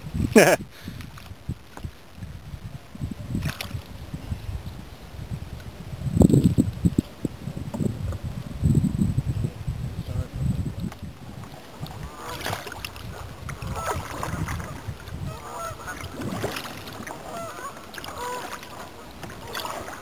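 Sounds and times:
paddle strokes in water: 3.1s - 5.8s, 10.7s - 20.0s.

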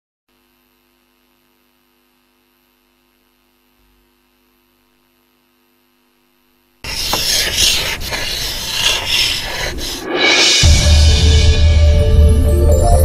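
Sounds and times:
faint electrical hum: 0.3s - 9.6s
loud noisy sound: 7.0s - 12.5s.

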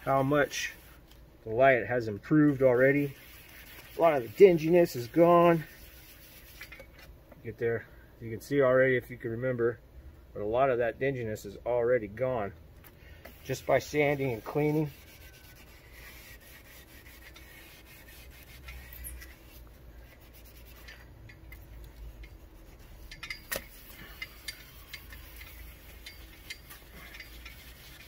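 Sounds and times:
sanding pad rubbing plastic: 2.5s - 6.7s, 13.3s - 20.9s, 23.8s - 28.0s.

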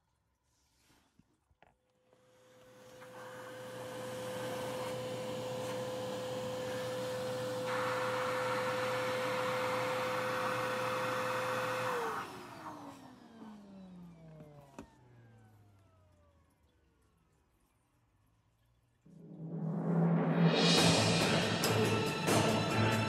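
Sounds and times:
vacuum cleaner running: 2.1s - 15.8s.

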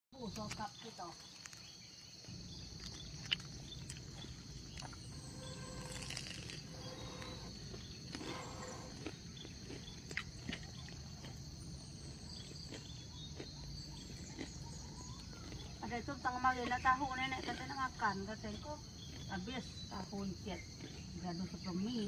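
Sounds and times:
high-pitched insect chorus: 0.2s - 22.0s.

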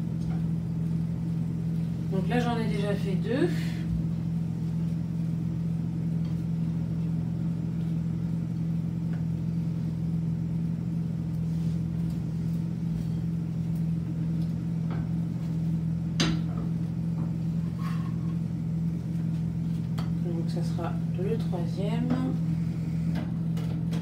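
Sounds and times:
low mechanical hum: 0.0s - 24.0s.

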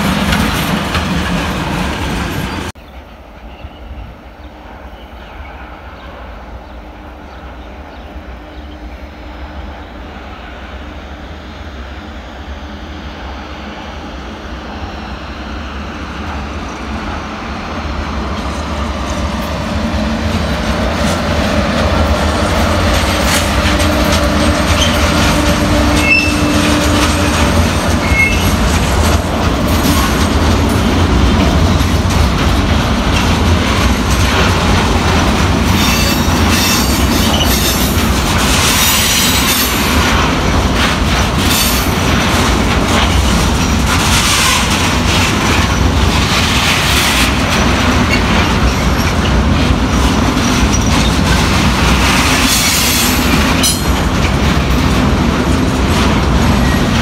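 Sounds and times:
electric locomotive and train passing: 0.0s - 57.0s
wheels clicking over rail joints: 20.3s - 57.0s
high wheel squeals: 24.7s - 27.4s, 28.0s - 28.6s.

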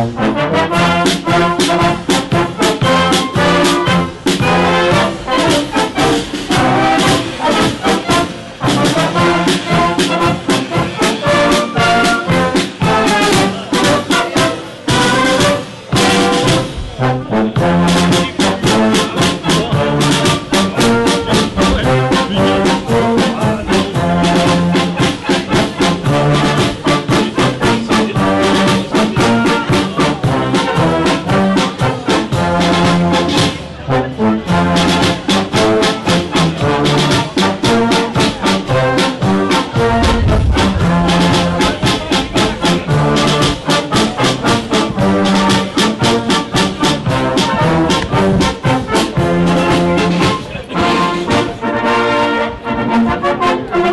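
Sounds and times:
wind band playing: 0.0s - 53.9s.

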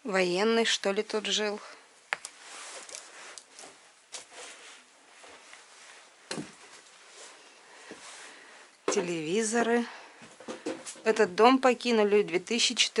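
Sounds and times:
faint rustling: 1.5s - 11.2s.

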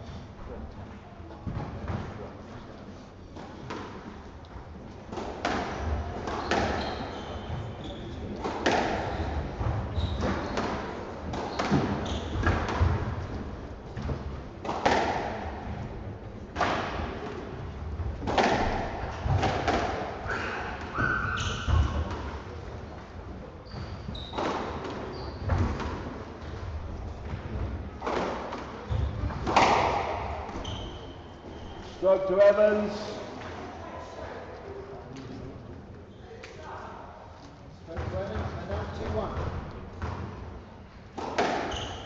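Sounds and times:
court shoes squeaking: 5.1s - 15.8s, 18.2s - 23.0s, 23.6s - 26.6s, 28.0s - 32.1s, 41.2s - 42.0s
squash ball striking: 8.3s - 13.2s, 14.0s - 15.7s, 18.1s - 22.4s, 27.2s - 30.6s, 41.1s - 42.0s.

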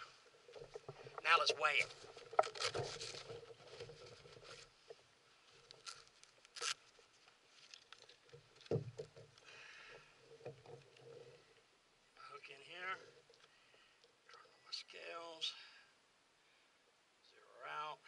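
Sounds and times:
fishing gear clicks and rustles: 0.0s - 11.7s.

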